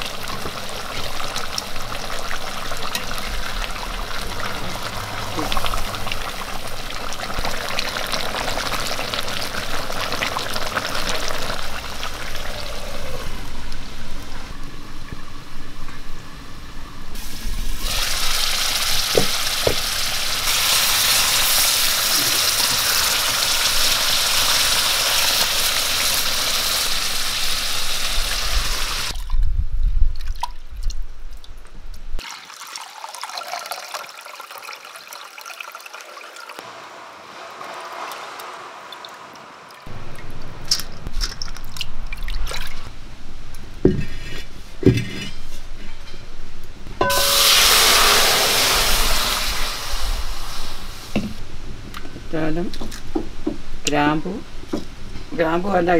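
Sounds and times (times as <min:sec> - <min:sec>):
curry bubbling and sizzling: 0:00.0 - 0:14.5
water trickling: 0:32.2 - 0:36.6, 0:37.9 - 0:42.9.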